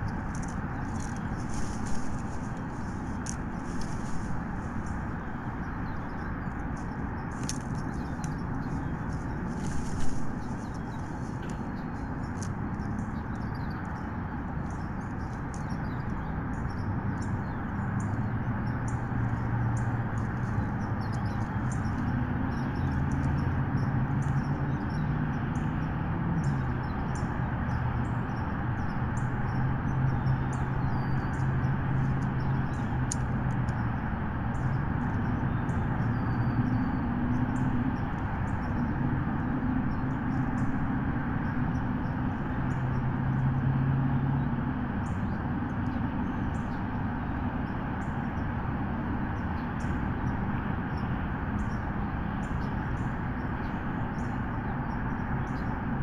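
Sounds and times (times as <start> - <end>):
continuous hiss: 0.0 - 13.2.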